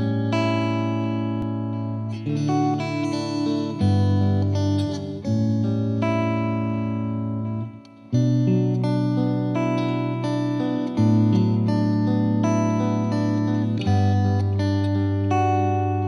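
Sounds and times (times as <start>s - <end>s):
plucked guitar music: 0.0s - 16.0s.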